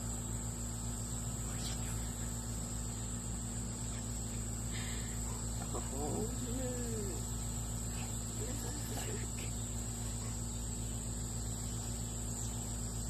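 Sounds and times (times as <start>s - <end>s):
insects trilling: 0.0s - 13.0s
low steady hum: 0.0s - 13.0s.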